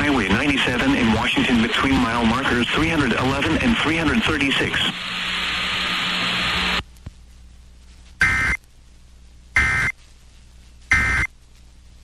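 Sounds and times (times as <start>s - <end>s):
radio hiss: 0.0s - 12.0s
short warbling digital beeps: 9.6s - 9.9s, 10.9s - 11.3s.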